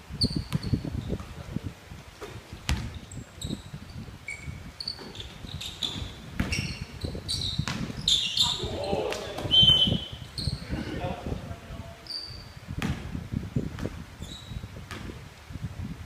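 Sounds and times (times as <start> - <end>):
sneakers squeaking: 0.2 - 1.4, 2.2 - 10.7, 12.0 - 13.0, 13.6 - 15.1
basketball bouncing: 0.4 - 1.3, 2.2 - 3.0, 4.9 - 8.2, 12.8 - 13.1, 13.8 - 14.0
footsteps thudding: 5.0 - 8.0.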